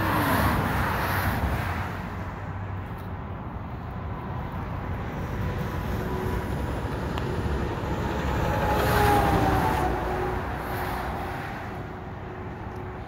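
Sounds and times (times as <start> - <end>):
steady traffic noise: 0.0 - 13.0
vehicle passing: 5.1 - 12.2.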